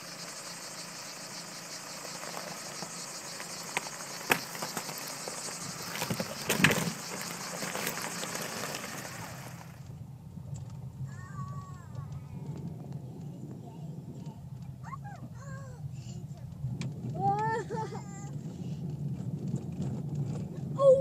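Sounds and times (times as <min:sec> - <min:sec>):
cicadas hissing: 0:00.0 - 0:09.8
stones crunching under tyres: 0:00.8 - 0:09.8.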